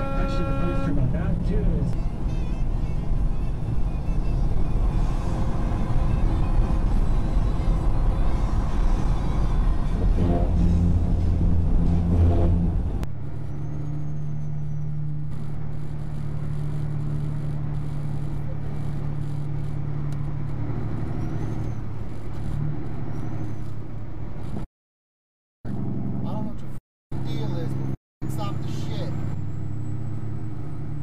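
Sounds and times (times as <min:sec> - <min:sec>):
truck engine and road noise: 0:00.0 - 0:24.7, 0:25.7 - 0:31.0
music: 0:02.0 - 0:11.4.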